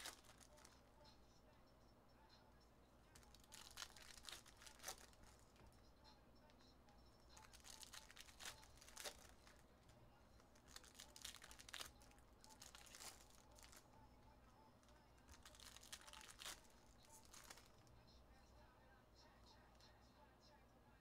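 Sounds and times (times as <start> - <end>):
wrappers crinkling and tearing: 0.0 - 0.8, 3.2 - 5.4, 7.4 - 9.6, 10.4 - 13.9, 14.8 - 17.9.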